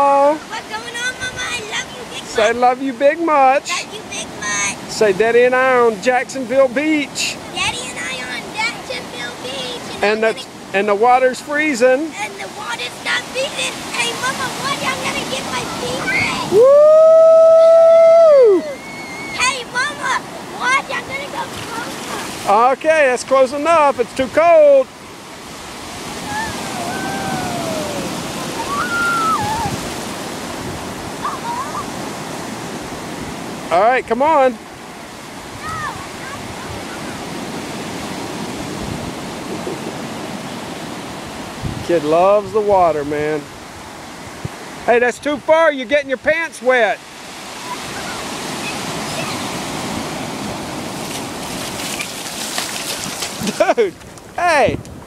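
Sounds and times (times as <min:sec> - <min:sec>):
ocean surf washing in: 0:00.0 - 0:55.0
faint high gliding calls: 0:18.5 - 0:19.5, 0:26.2 - 0:29.8, 0:31.2 - 0:31.9.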